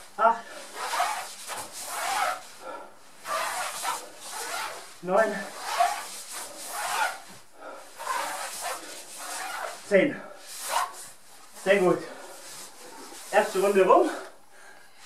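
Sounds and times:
costume rubbing on floor mat: 0.6s - 13.9s
person breathing heavily: 7.5s - 8.1s.

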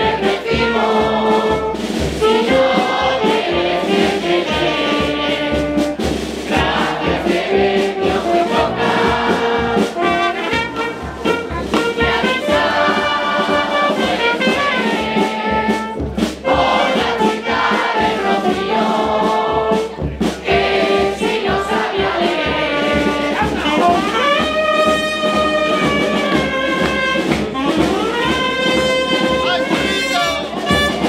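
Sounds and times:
group singing in unison: 0.0s - 24.4s
bass drum beat: 0.0s - 31.0s
brass band playing: 0.0s - 31.0s.

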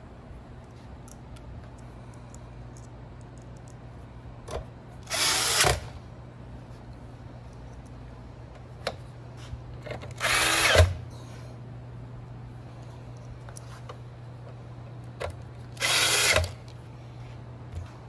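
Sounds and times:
cordless drill driving screw: 5.0s - 5.9s, 10.2s - 11.0s, 15.8s - 16.6s.

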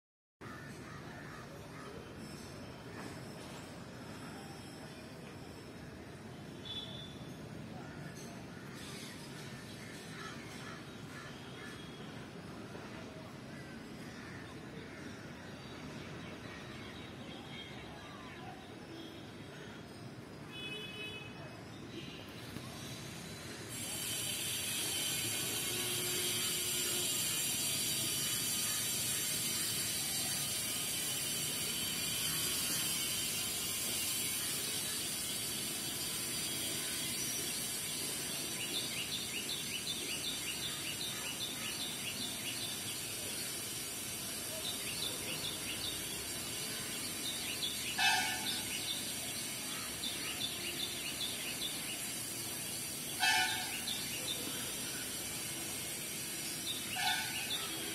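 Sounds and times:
steady high hiss: 22.2s - 57.9s.

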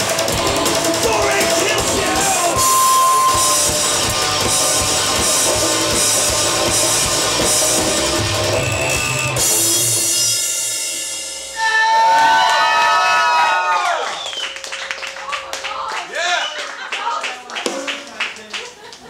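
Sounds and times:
electric guitar: 0.0s - 11.5s
bass guitar: 0.0s - 11.6s
cymbals keeping a beat: 0.0s - 11.9s
electronic drum kit: 0.0s - 11.9s.

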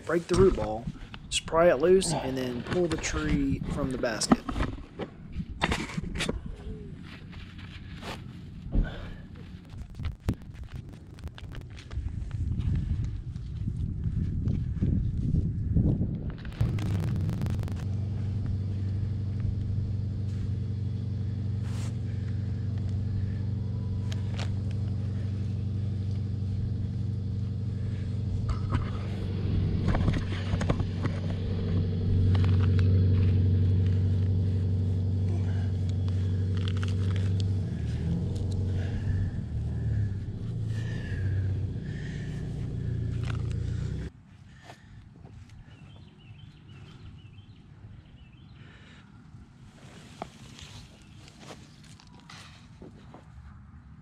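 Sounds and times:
engine running: 5.7s - 45.0s
scrapes and rustles of burlap: 49.7s - 53.4s.

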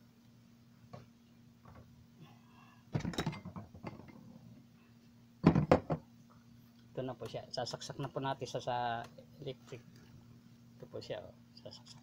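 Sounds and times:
clattering handling noise: 3.0s - 4.3s.

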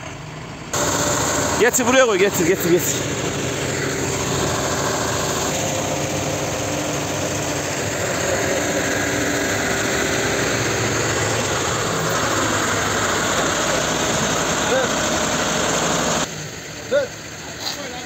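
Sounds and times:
truck engine running: 0.0s - 18.0s.

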